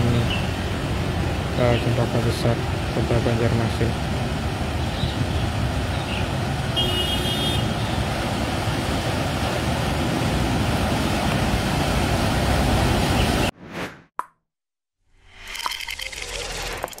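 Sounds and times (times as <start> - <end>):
vehicles driving through water: 0.0 - 13.5.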